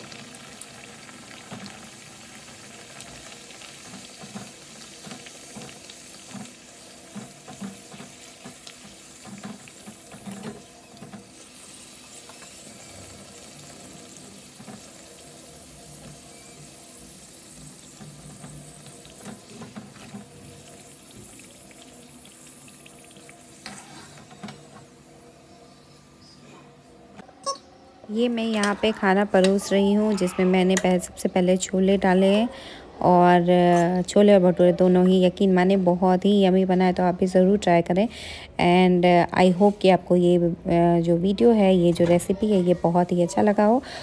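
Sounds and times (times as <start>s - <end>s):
bread deep-frying in oil: 0.0s - 25.2s.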